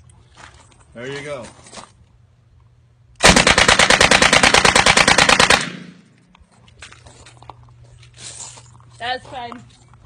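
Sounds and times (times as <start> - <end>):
submachine gun automatic burst: 3.2 - 6.0
gunshot echo: 5.4 - 6.1.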